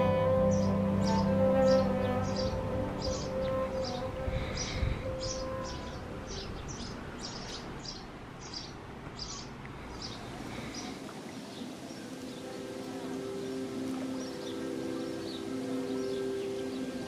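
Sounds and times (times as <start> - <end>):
soft music with held notes: 0.0 - 8.7, 10.0 - 17.0
outdoor hiss: 0.0 - 17.0.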